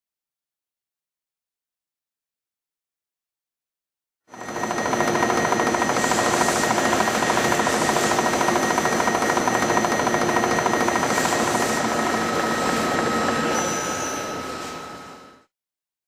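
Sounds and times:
high spindle whine: 4.3 - 15.5.

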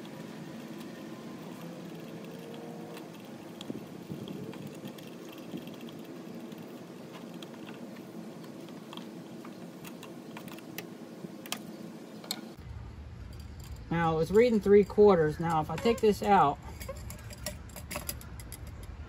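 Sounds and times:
low background hum: 0.0 - 19.0
screwdriver clicks and scrapes: 15.6 - 19.0.

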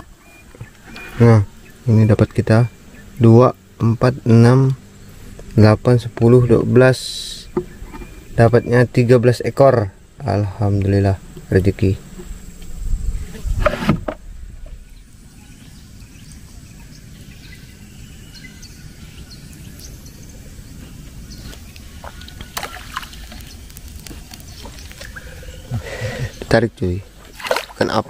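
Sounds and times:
low outdoor rumble: 0.0 - 28.0
water sloshing around a boat: 21.6 - 25.7, 26.3 - 28.0.

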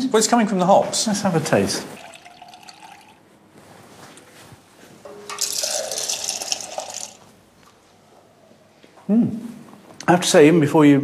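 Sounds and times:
beer pouring into a glass: 1.9 - 3.2, 5.3 - 7.3.

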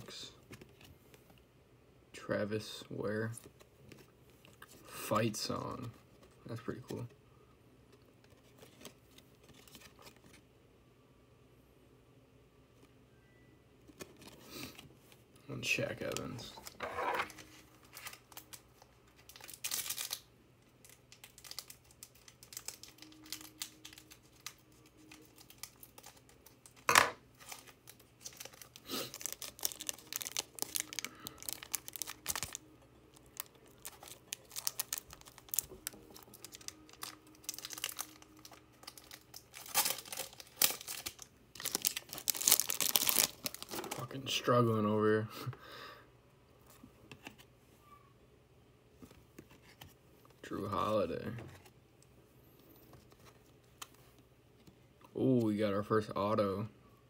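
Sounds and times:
foil wrapper crinkling and tearing: 16.0 - 44.0.

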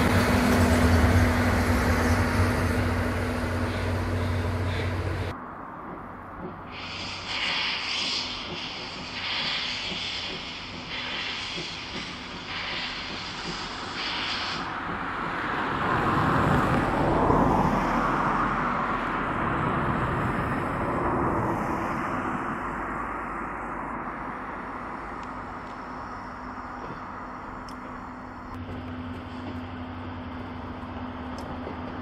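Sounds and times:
rushing noise falling in pitch: 0.0 - 5.3
steam locomotive hissing: 0.0 - 5.3, 6.6 - 15.4.

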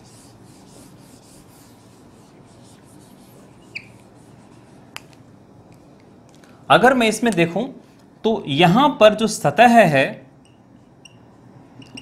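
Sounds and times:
duster scrubbing whiteboard: 0.0 - 4.8
squeak: 3.6 - 4.0.

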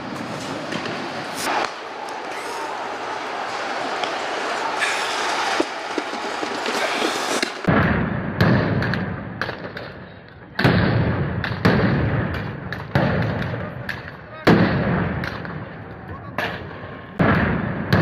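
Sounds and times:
crowd din: 0.0 - 7.8
loud bangs and thuds: 5.6 - 9.9, 17.2 - 18.0.

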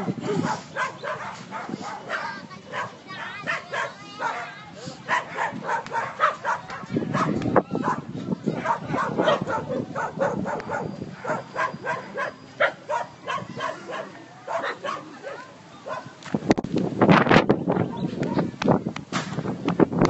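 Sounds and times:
dog barking: 0.4 - 16.1.

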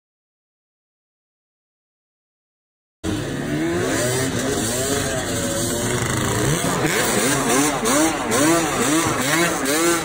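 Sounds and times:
quad engine revving: 3.0 - 10.0.

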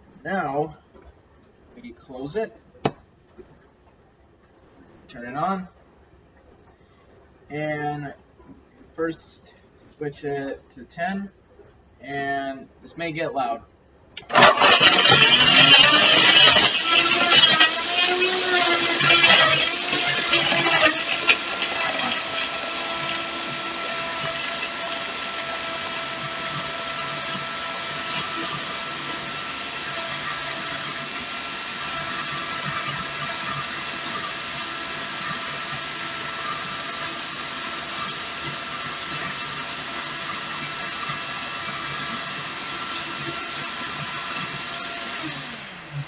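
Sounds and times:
blender motor whining: 14.2 - 46.0.

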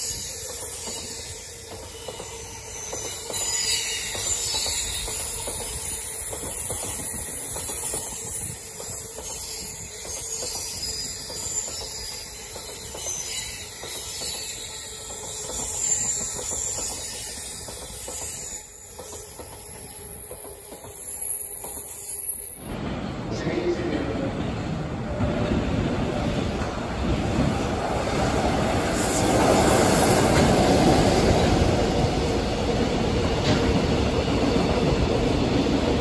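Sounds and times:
train wheels clattering over rails: 0.0 - 22.0, 24.4 - 36.0
high-pitched squeal and hiss: 0.0 - 22.6.

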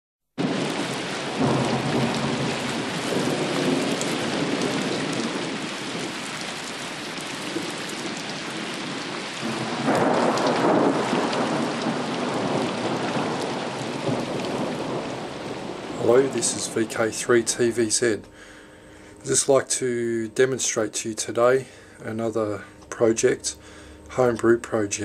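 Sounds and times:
rolling thunder: 0.4 - 18.0
steady rain: 0.4 - 25.0.

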